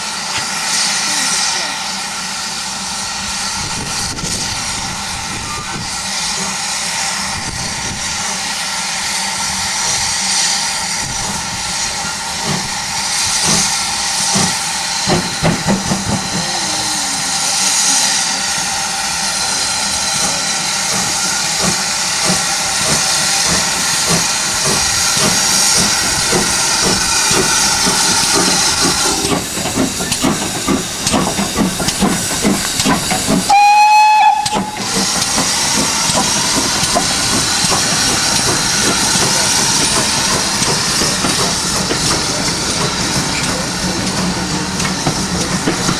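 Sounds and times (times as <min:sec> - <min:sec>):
steam hissing: 0:00.0 - 0:45.9
locomotive exhaust beats: 0:20.2 - 0:45.9
steam whistle blast: 0:33.5 - 0:34.9.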